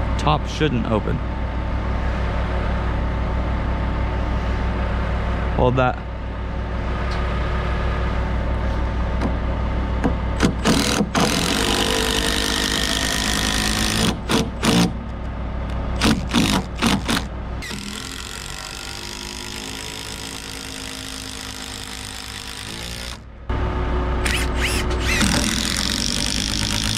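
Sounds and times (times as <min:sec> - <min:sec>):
impact driver bursts: 0:10.4 - 0:15.0, 0:16.0 - 0:23.2, 0:24.2 - 0:26.9.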